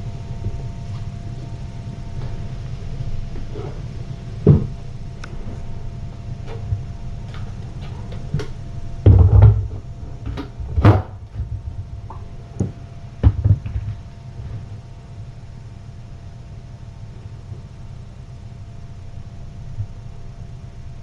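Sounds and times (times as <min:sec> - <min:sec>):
low electrical hum: 0:00.0 - 0:21.0
knocks and thumps: 0:04.4 - 0:04.8, 0:09.0 - 0:14.7.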